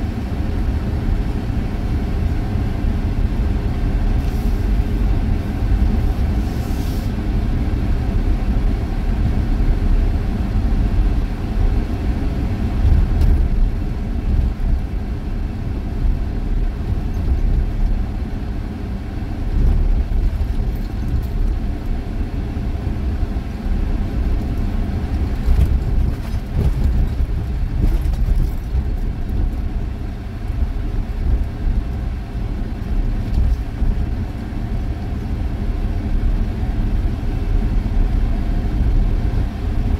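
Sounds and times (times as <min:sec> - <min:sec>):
vehicle engine and tyres rumbling: 0:00.0 - 0:39.9.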